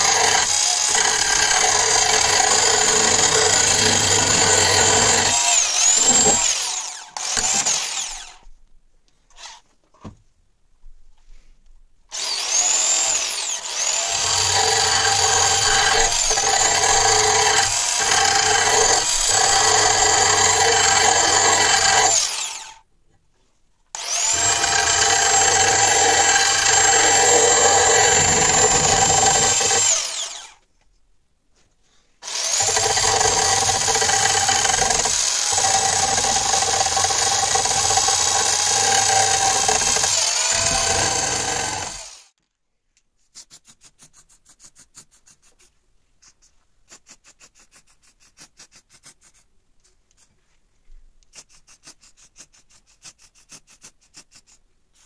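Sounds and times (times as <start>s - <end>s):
electric drill grinding steel: 0.0s - 8.4s, 9.4s - 9.6s, 12.1s - 22.8s, 24.0s - 30.6s, 32.2s - 42.4s.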